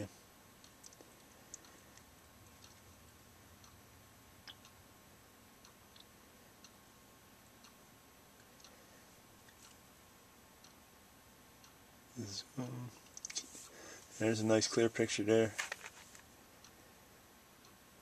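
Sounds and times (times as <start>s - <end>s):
faint small ticks: 0.6s - 3.0s.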